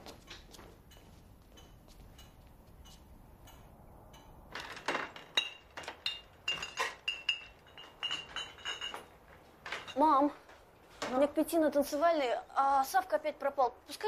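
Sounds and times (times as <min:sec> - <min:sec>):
crockery clinking: 0:00.9 - 0:10.1.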